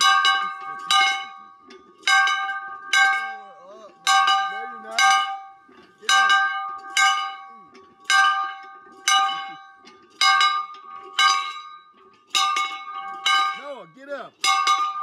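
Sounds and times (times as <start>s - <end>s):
handheld bell ringing: 0.0s - 15.0s.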